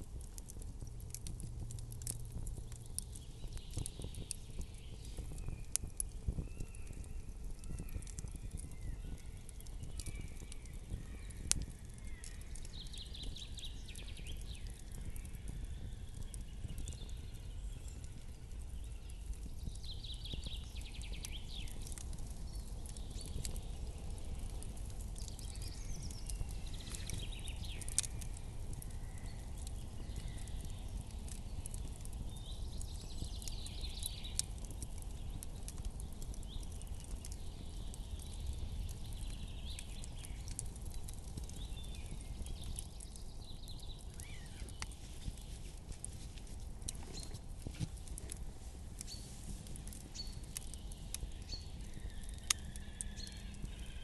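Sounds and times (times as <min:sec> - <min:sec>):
campfire crackling and popping: 0:00.0 - 0:54.0.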